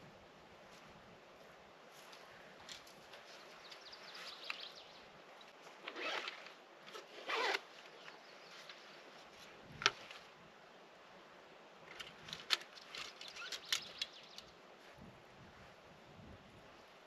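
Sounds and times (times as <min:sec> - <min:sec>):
zipper pulled: 0:05.8 - 0:07.7.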